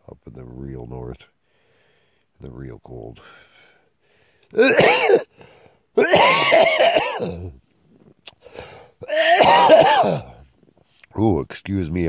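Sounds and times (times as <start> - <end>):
man coughing: 4.6 - 5.3, 6.0 - 7.6, 9.0 - 10.4.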